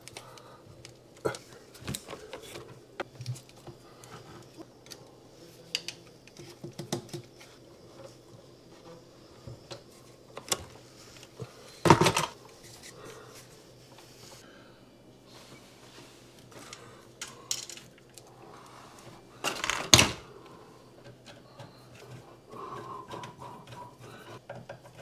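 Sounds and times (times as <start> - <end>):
hand tools clicking and knocking: 21.0 - 25.0.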